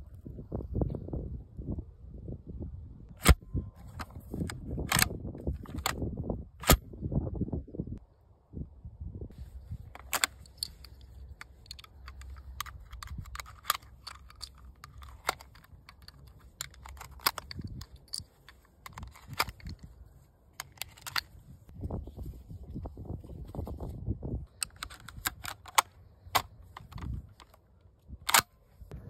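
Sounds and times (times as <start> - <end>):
metallic clicks of cartridges loading: 3.2 - 6.0, 9.9 - 21.5, 24.5 - 28.6.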